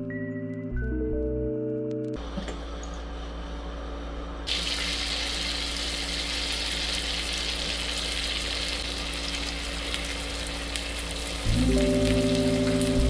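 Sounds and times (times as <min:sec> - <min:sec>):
butter sizzling in pan: 0:04.5 - 0:13.0.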